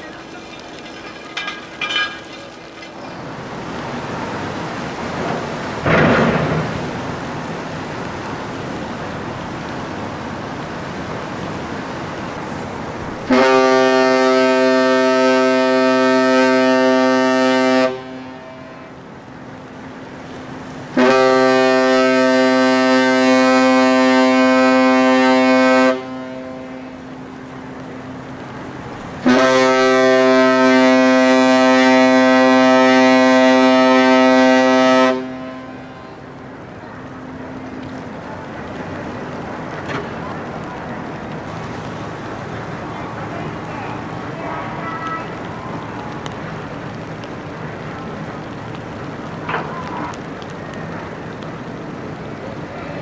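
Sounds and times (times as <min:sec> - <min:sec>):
ship whistle long blasts: 0:13.3 - 0:19.0, 0:20.9 - 0:27.0, 0:29.2 - 0:36.2.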